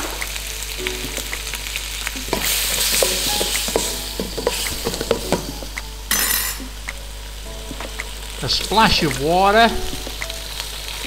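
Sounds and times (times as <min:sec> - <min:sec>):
stir-fry sizzling: 0:00.0 - 0:11.0.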